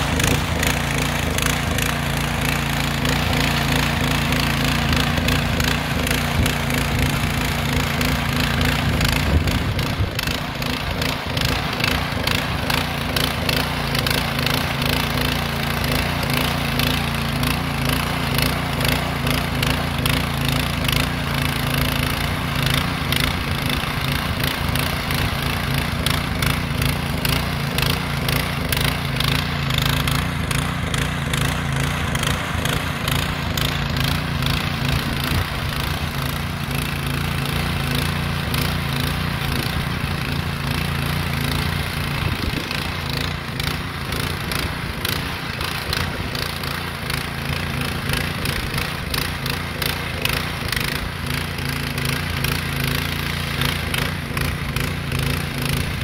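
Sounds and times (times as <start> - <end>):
motor hoe engine running: 0.0 - 56.0.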